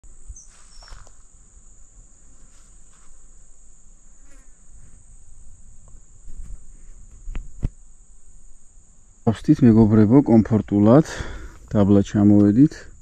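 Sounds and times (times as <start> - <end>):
insects shrilling: 0.1 - 13.0.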